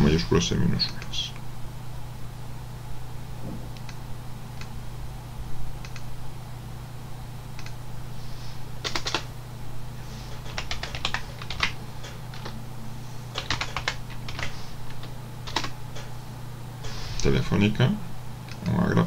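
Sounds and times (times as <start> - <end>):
typing on computer keyboard: 8.8 - 9.3, 10.4 - 12.5, 13.4 - 15.8.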